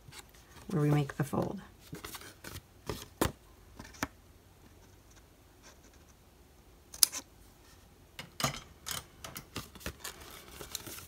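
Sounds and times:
card rustling: 9.5 - 11.0.

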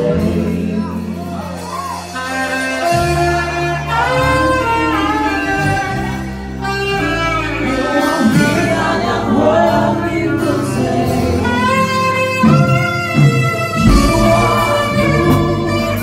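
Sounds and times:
band with steady bass line: 0.0 - 16.0
saxophone melody: 2.0 - 9.2, 11.1 - 16.0.

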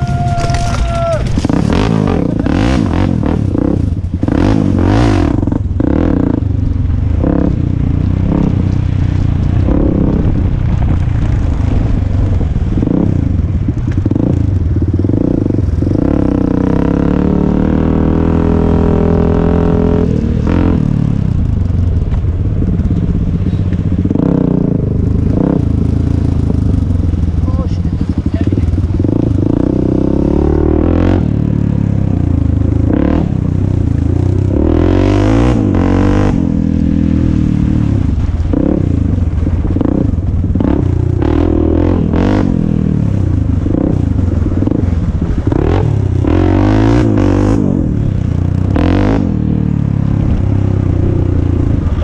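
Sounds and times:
motorcycle engine revving: 0.0 - 52.0.

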